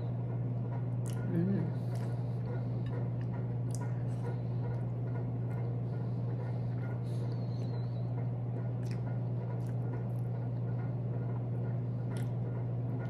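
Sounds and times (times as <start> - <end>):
steady low hum: 0.0 - 13.0
person chewing: 8.7 - 10.2.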